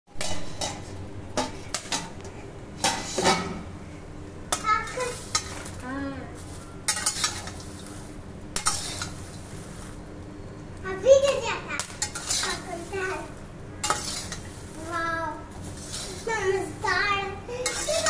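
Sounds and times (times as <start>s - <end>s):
popcorn popping: 0.1s - 3.7s, 4.4s - 18.0s
faint sizzle: 0.1s - 18.0s.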